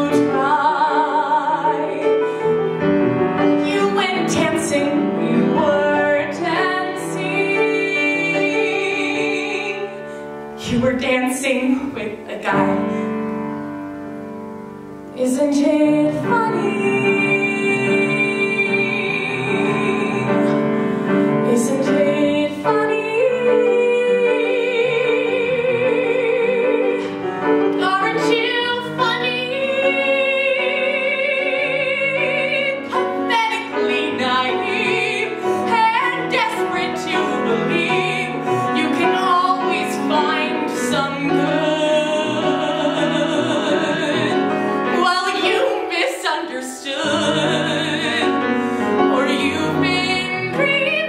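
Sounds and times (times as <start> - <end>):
woman singing: 0.0 - 13.7, 15.0 - 51.0
piano accompaniment: 0.0 - 51.0.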